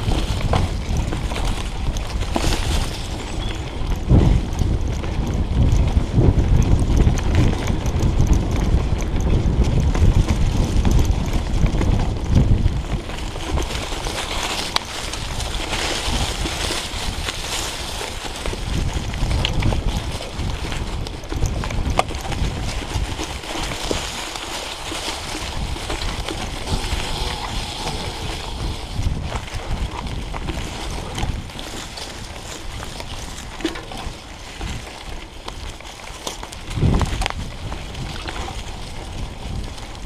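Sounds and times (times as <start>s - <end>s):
tyres rolling over dry leaves: 0.0s - 4.5s, 12.5s - 40.0s
bike rattling and knocking: 0.0s - 40.0s
wind rumble on microphone: 0.0s - 40.0s.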